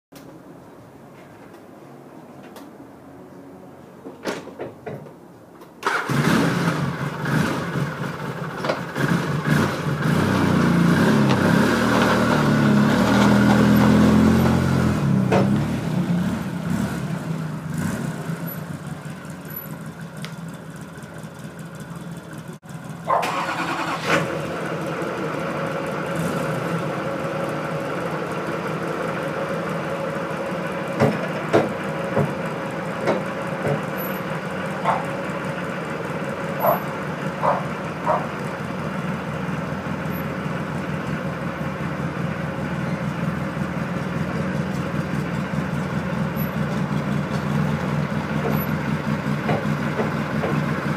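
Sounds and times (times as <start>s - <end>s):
atv engine revving hard: 5.9s - 8.0s, 9.0s - 17.1s
engine running steadily: 5.9s - 50.9s.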